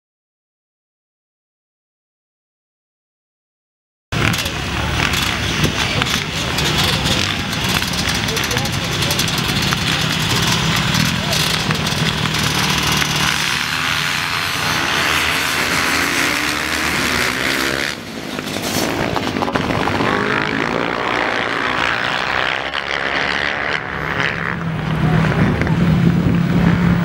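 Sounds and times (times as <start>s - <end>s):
dirt bike engines revving: 4.2s - 27.0s.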